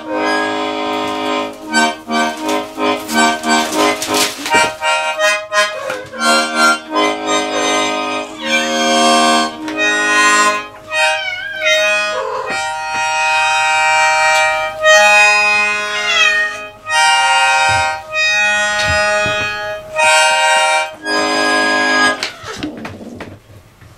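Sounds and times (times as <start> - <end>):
button accordion playing chords: 0.0 - 22.2
cat yowling: 10.8 - 12.6, 15.8 - 16.8, 22.2 - 23.2.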